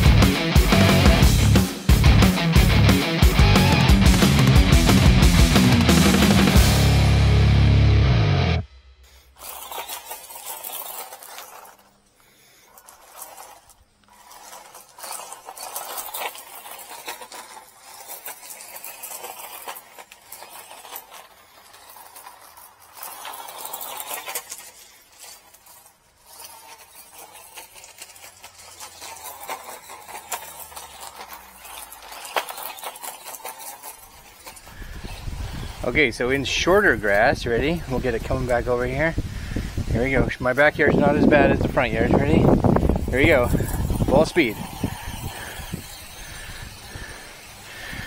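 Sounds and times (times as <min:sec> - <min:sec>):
rattling and clicking chassis: 0:00.0 - 0:07.7, 0:09.3 - 0:48.0
electric motor whining: 0:00.0 - 0:48.0.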